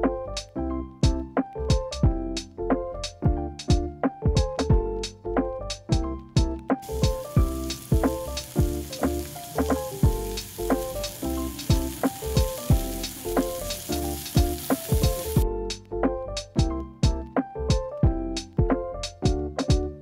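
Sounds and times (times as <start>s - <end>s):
piano music with a beat: 0.0s - 20.0s
meat and vegetables sizzling: 6.8s - 15.4s.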